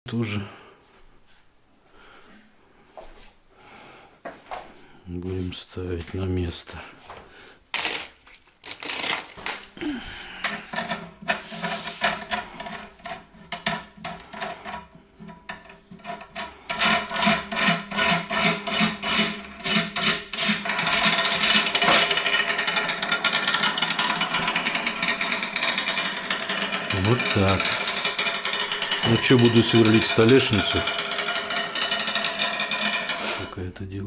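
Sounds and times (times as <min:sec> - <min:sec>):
metal washers and nuts rattling: 0:07.8 - 0:33.6.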